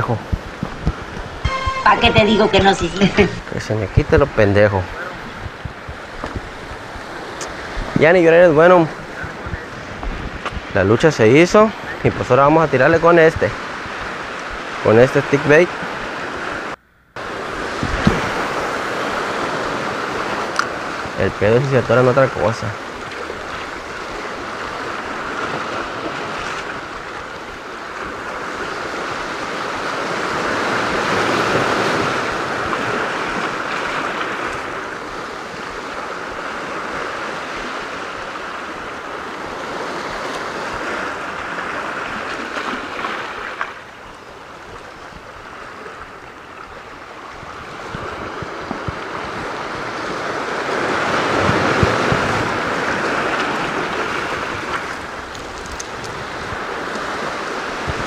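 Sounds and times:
wind buffeting microphone: 5.1 - 8.0, 8.9 - 10.8, 47.3 - 58.0
waves breaking over rocks: 11.6 - 58.0.

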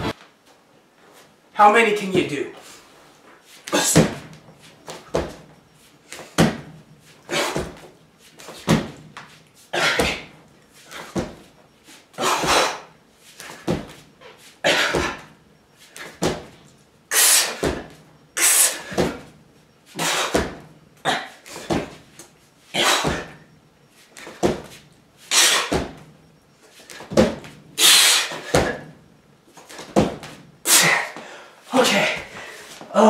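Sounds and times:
man huffing sharp breaths: 30.7 - 32.9.

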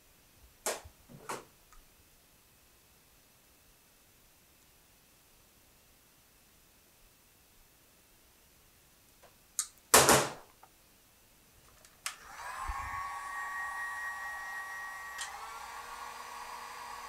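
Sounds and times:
click: 9.6 - 9.8, 15.2 - 15.4
heat gun fan whine: 12.0 - 17.0.

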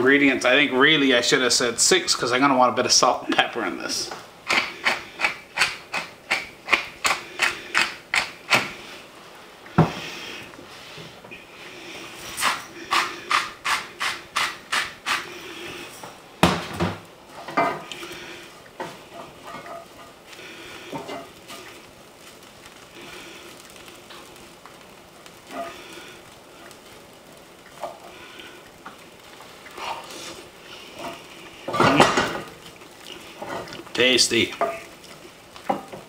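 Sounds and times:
wooden spoon scraping a pan: 9.8 - 16.2, 17.3 - 24.4, 25.3 - 27.0, 27.7 - 36.0.

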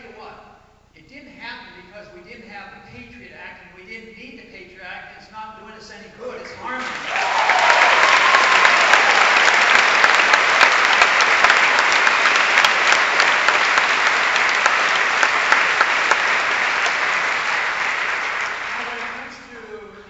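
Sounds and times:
audience applauding: 6.7 - 19.5
audience cheering: 6.8 - 19.4.

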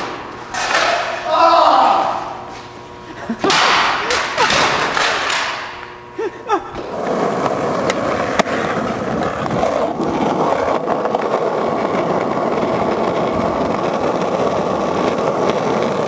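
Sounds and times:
skateboard wheels rolling on asphalt: 6.8 - 16.0.

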